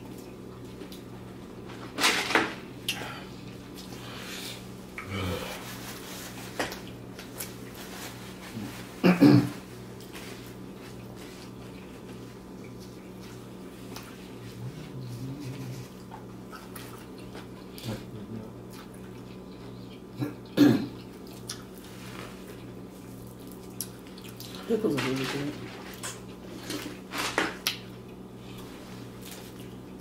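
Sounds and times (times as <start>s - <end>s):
low steady hum: 0.0s - 30.0s
person chewing food: 9.6s - 24.7s, 25.9s - 30.0s.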